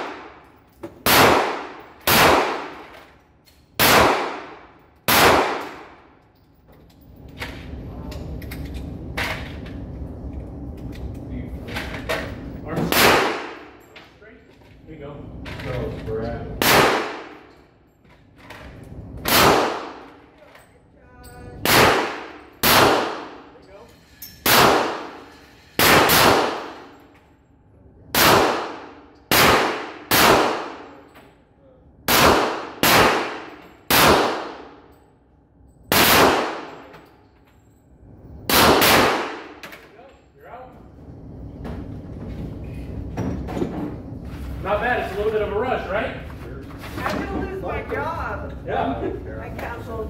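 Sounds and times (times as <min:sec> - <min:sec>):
gunshots with metallic ringing: 0:00.0 - 0:02.9, 0:03.8 - 0:06.1, 0:12.9 - 0:13.9, 0:16.6 - 0:17.6, 0:19.2 - 0:20.2, 0:21.6 - 0:23.6, 0:24.4 - 0:27.0, 0:28.1 - 0:31.1, 0:32.1 - 0:35.0, 0:35.8 - 0:37.0, 0:38.4 - 0:39.6.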